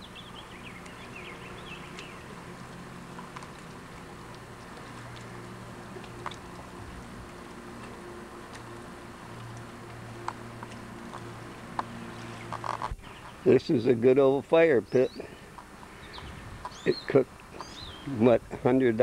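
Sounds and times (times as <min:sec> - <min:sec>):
faint bird chirps: 0:14.9 - 0:18.2.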